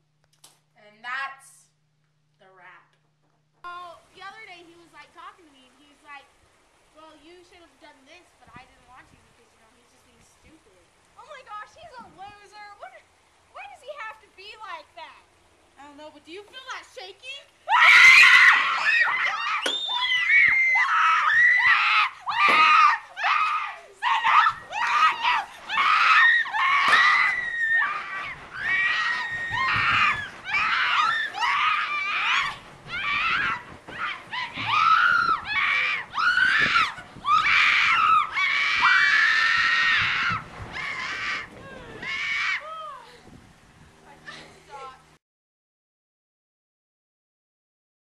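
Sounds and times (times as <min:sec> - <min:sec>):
girls screaming: 0:17.6 - 0:43.2.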